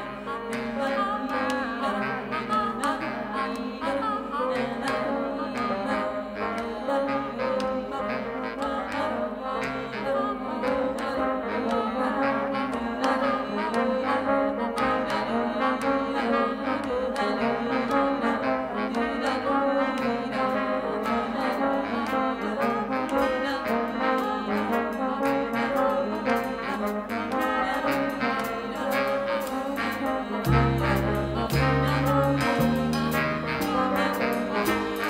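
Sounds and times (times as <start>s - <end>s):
music with brass and steady beat: 0.0s - 35.0s
heavy bass notes: 30.5s - 35.0s.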